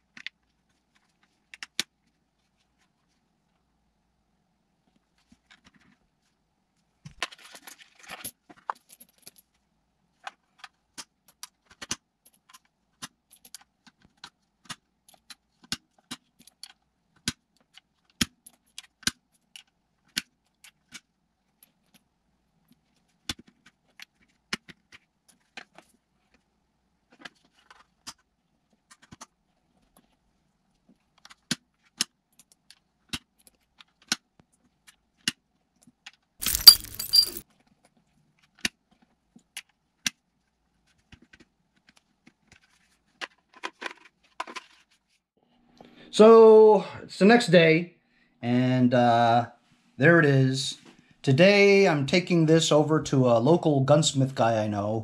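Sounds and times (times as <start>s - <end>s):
cartridges clicking and clinking: 36.4s - 37.4s.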